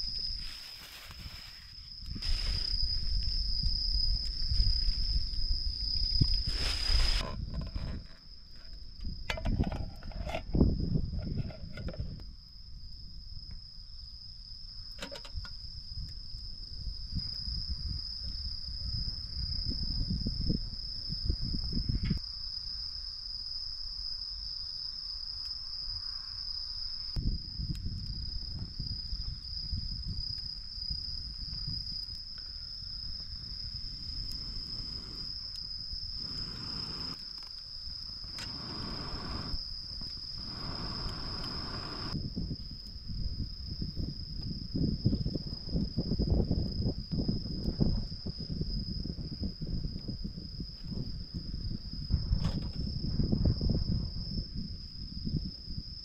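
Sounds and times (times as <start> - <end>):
insects singing: 30.9 - 42.3.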